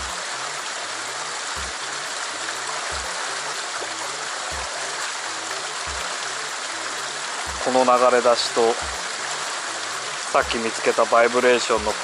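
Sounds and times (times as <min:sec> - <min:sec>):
water rushing through rock channel: 0:00.0 - 0:12.0
faint low thuds: 0:01.6 - 0:01.8, 0:07.4 - 0:07.7.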